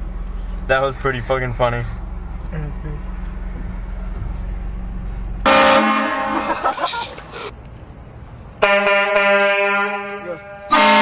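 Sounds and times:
low engine hum: 0.0 - 8.7
air horn blasting a chord: 5.4 - 6.4, 8.6 - 11.0.

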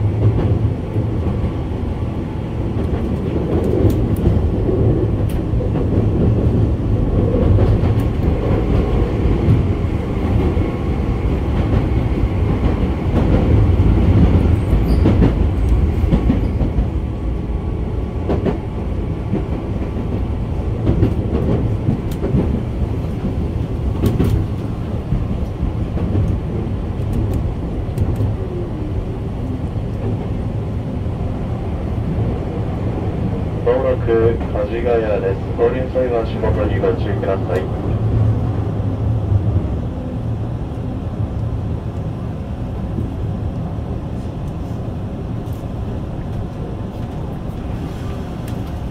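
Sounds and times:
train rumbling: 0.0 - 48.9.

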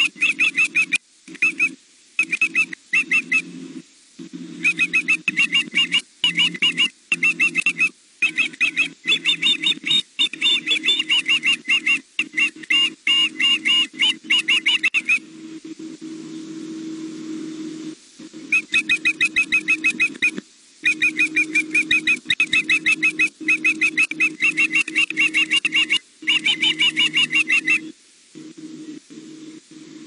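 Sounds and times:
young osprey whistled chirps: 0.1 - 3.4, 4.6 - 15.2, 18.5 - 27.9.

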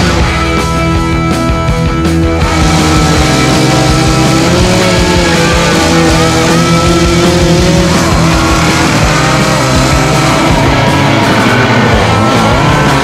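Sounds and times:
rock music with guitar: 0.0 - 13.0
chainsaw cutting wood: 2.4 - 13.0.

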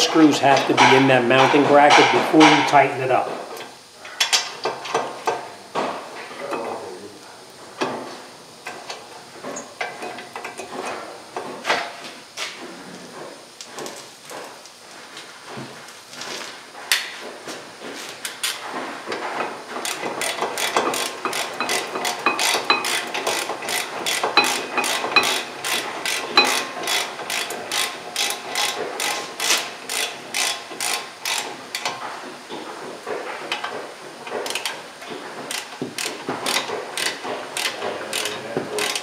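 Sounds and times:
ratchet wrench clicking: 19.8 - 31.4, 35.5 - 39.0.

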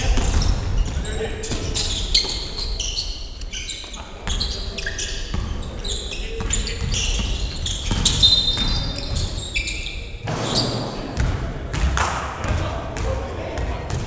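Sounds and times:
shoes squeaking on wooden floor: 0.3 - 10.8
basketball bouncing: 6.4 - 9.2, 10.3 - 14.0.

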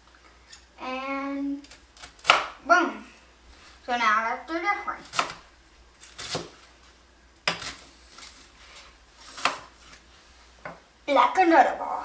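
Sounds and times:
knife chopping onion on board: 1.6 - 2.6, 5.0 - 5.4, 6.1 - 6.6, 7.4 - 7.8, 9.3 - 9.7.

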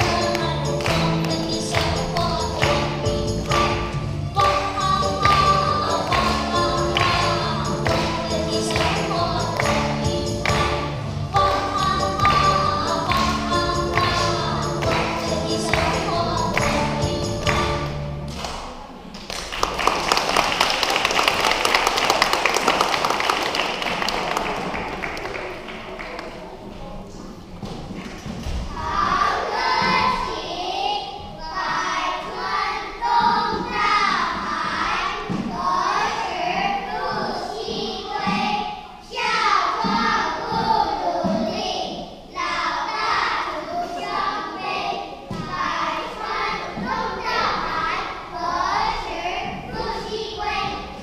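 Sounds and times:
children singing: 0.0 - 18.1, 28.7 - 51.0
person singing: 11.4 - 17.8
audience applauding: 19.2 - 26.5.

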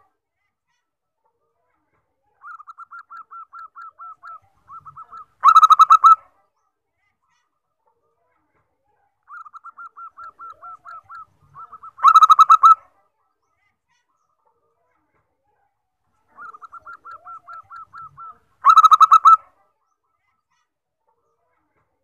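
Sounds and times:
dove cooing: 2.5 - 6.2, 9.4 - 12.8, 16.4 - 19.4.

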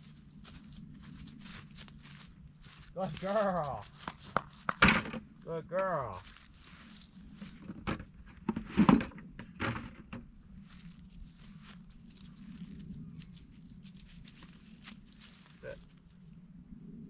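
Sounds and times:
footsteps in dry grass and leaves: 0.0 - 8.9, 9.8 - 16.6
rustling and knocks on plastic bucket: 4.1 - 5.2, 7.5 - 10.3.

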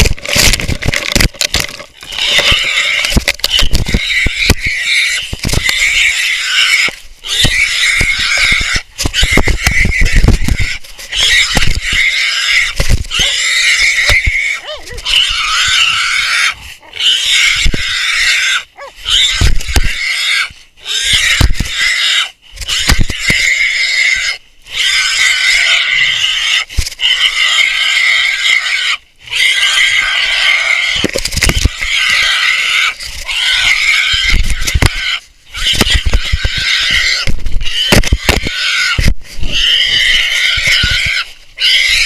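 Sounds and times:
hog squealing: 2.0 - 42.0.

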